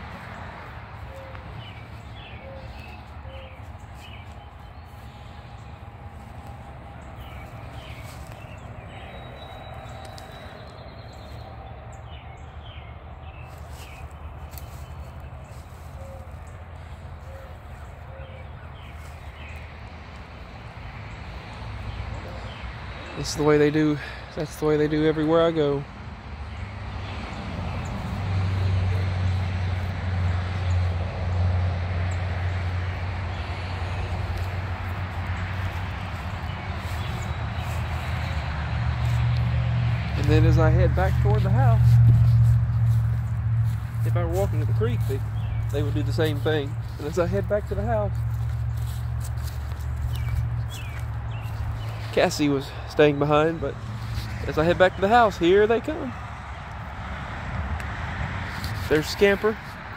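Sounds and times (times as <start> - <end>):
low engine hum: 0.0 - 25.2, 25.8 - 59.9
steady low rumble: 27.7 - 52.0.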